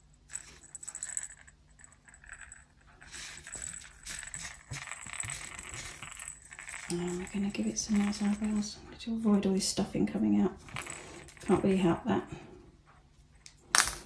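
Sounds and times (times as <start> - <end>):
toy rattle rattling: 0.0 - 8.8
rustling of toy in hands: 2.3 - 8.8.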